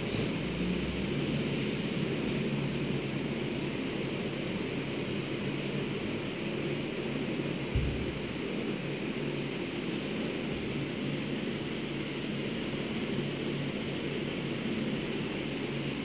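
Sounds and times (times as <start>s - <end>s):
droning low hum: 0.0s - 16.0s
dull thump: 7.7s - 8.2s.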